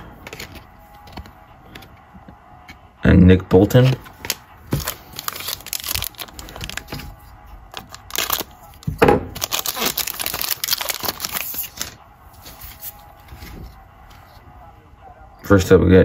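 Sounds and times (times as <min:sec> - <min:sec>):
foil wrapper crinkling and tearing: 0:04.3 - 0:07.1, 0:07.7 - 0:12.0.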